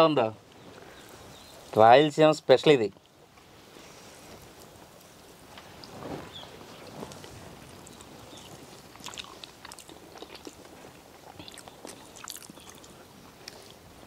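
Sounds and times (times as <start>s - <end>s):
chewing and mouth smacks: 7.1s - 13.8s.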